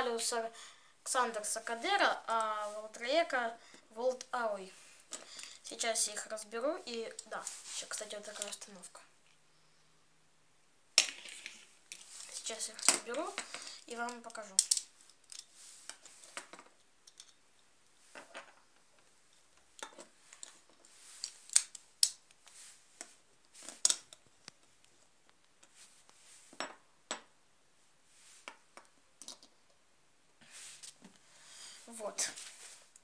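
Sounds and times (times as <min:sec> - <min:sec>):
parts set down on wooden floor: 0:26.5 - 0:27.2.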